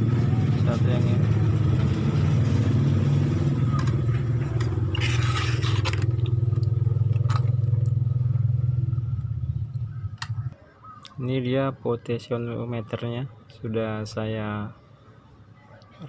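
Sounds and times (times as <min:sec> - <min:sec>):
engine humming: 0:00.0 - 0:11.1
clicks and scraping: 0:03.7 - 0:08.0.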